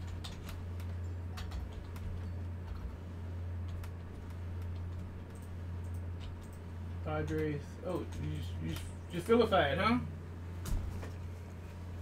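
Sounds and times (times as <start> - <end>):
computer keyboard keystrokes: 0.0 - 2.9, 3.6 - 6.6
low electrical hum: 0.0 - 12.0.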